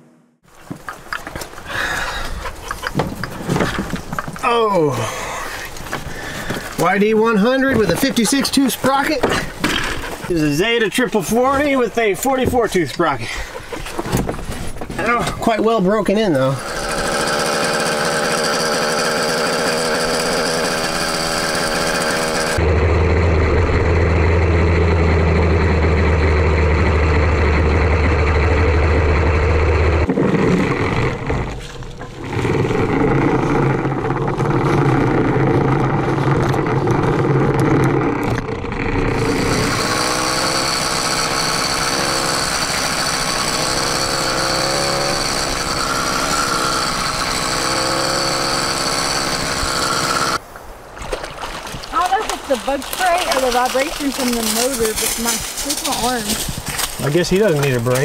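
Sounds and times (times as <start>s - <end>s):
small bicycle engine running: 16.4s - 22.6s, 30.8s - 50.4s, 52.7s - 58.0s.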